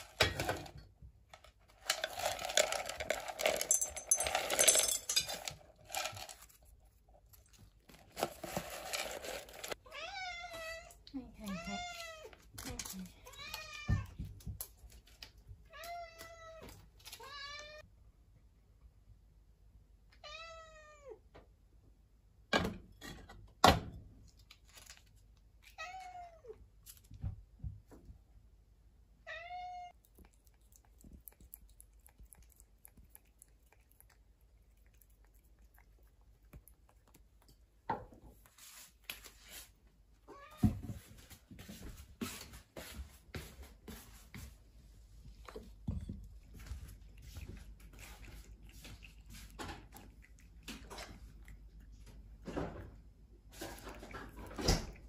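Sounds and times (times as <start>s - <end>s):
cat meowing: 9.8s - 12.3s, 20.2s - 21.2s, 29.2s - 30.0s.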